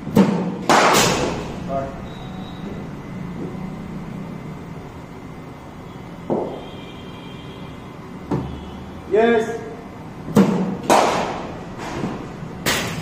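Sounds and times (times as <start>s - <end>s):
steady low hum: 0.0s - 13.0s
cricket ball sharp crack: 10.4s - 11.4s.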